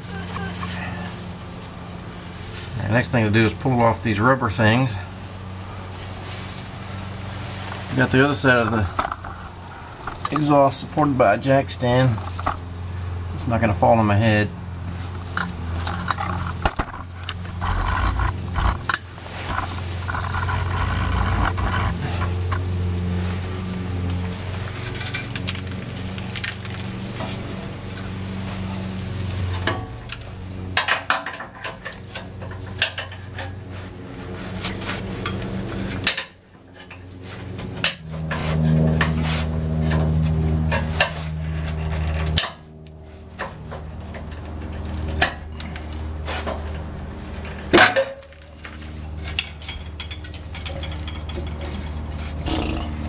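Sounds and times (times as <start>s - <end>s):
steady low hum: 0.0s - 30.8s
metal clanks of tools and pipe: 29.5s - 33.6s, 34.6s - 39.2s, 39.8s - 42.7s, 43.3s - 52.1s.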